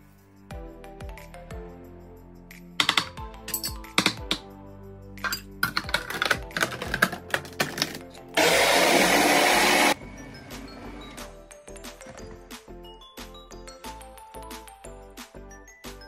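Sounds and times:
plastic lid clicking and clattering: 0:05.2 - 0:08.1
food processor motor running: 0:07.8 - 0:10.0.

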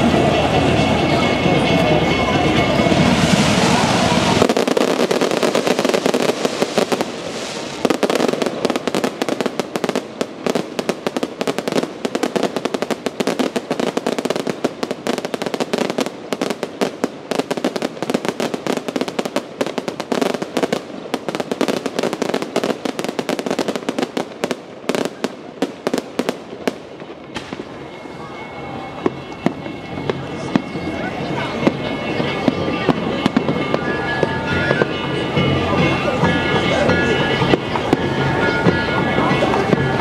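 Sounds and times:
continuous rushing noise: 0:00.0 - 0:40.0
fireworks crackling pops: 0:02.9 - 0:28.0.

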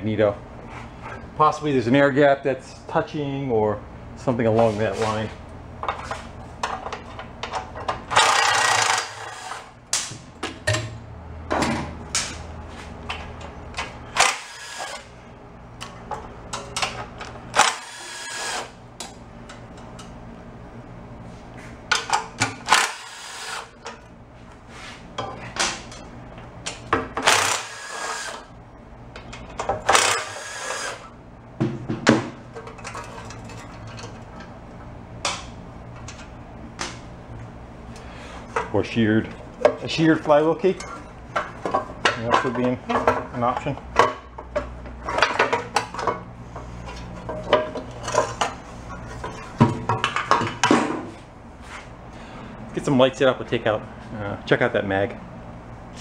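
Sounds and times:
cordless driver spinning bolts: 0:08.1 - 0:09.6, 0:17.5 - 0:18.7, 0:27.2 - 0:28.4, 0:29.9 - 0:31.1.

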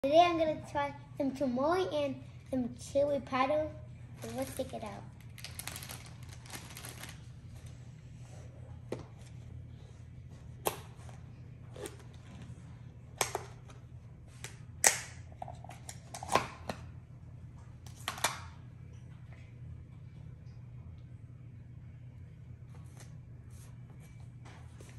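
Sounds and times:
plastic bag rustling: 0:04.2 - 0:07.8.

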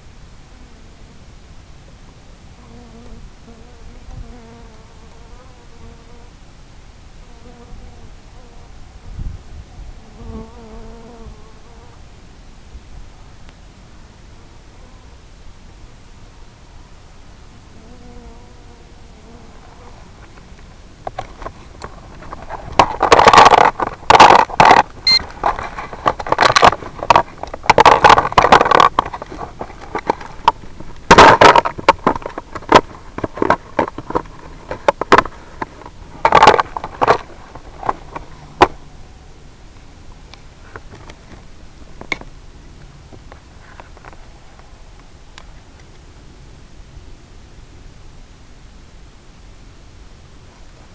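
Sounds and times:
steady static hiss: 0:00.0 - 0:50.9
crackling and scraping bursts: 0:20.0 - 0:38.8.

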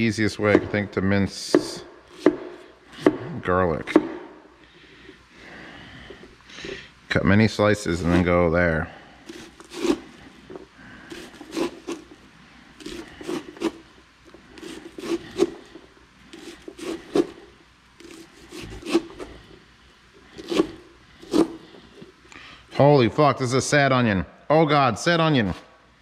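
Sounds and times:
light knife scraping: 0:09.3 - 0:12.2, 0:12.8 - 0:19.6, 0:20.3 - 0:22.1.

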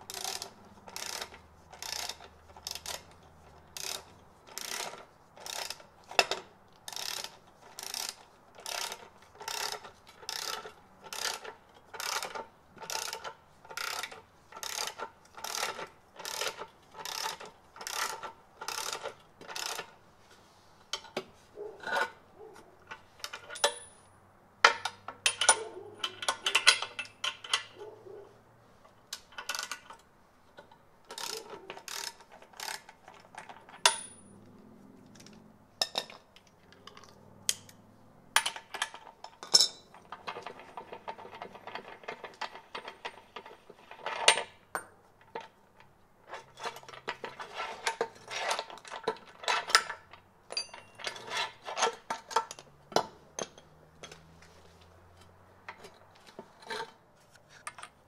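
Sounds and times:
socket ratchet clicking: 0:00.0 - 0:06.3, 0:31.1 - 0:33.0
metal clinks and clanks: 0:22.8 - 0:27.9, 0:30.6 - 0:45.5, 0:46.3 - 0:57.0, 0:57.6 - 0:58.0.

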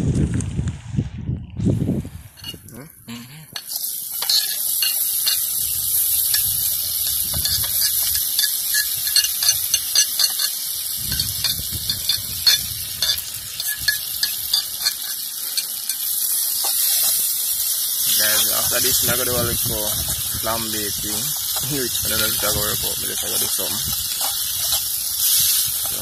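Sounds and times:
knife scraping metal plate: 0:02.4 - 0:02.6
vegetables sizzling in oil: 0:03.6 - 0:26.0.

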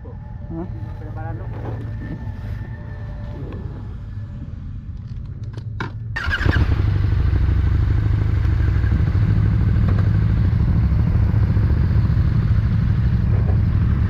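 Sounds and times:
engine starting whine: 0:06.2 - 0:07.8
motorcycle engine idling: 0:06.2 - 0:14.0.

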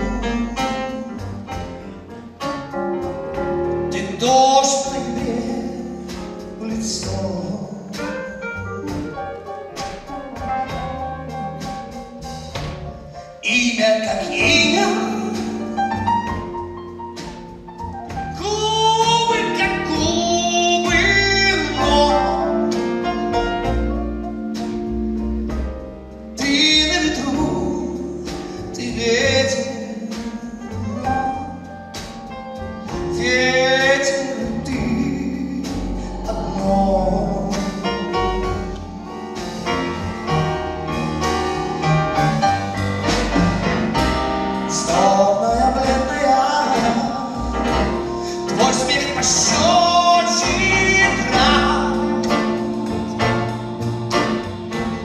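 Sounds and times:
man singing: 0:00.0 - 0:01.2, 0:03.9 - 0:08.8, 0:13.4 - 0:15.8, 0:18.3 - 0:22.8, 0:26.4 - 0:31.8, 0:32.9 - 0:39.3, 0:44.7 - 0:53.8
band playing: 0:00.0 - 0:55.0.

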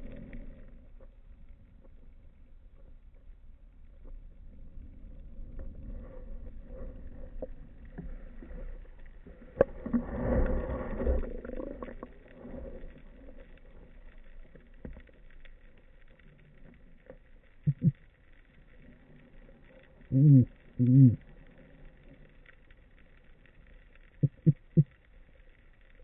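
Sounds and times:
faint ticks: 0:00.0 - 0:26.0
underwater water movement rumble: 0:00.0 - 0:26.0.

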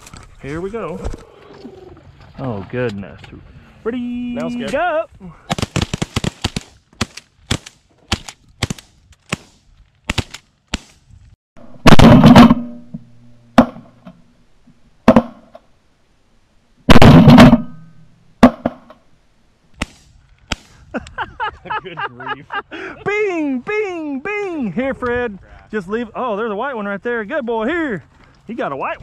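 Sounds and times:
shotguns firing: 0:05.5 - 0:11.0, 0:11.8 - 0:12.8, 0:16.9 - 0:17.8.

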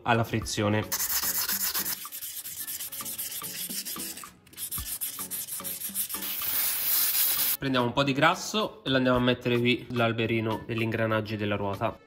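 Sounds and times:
sandpaper scratching metal: 0:00.9 - 0:07.6.

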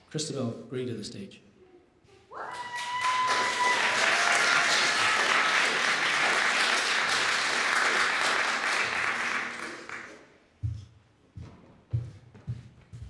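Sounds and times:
audience applauding: 0:02.5 - 0:10.3.

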